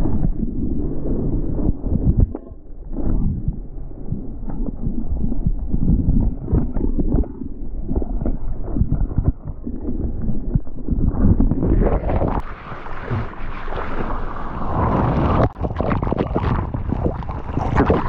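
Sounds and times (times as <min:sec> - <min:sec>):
muffled rush of churning whitewater: 0:12.1 - 0:18.0.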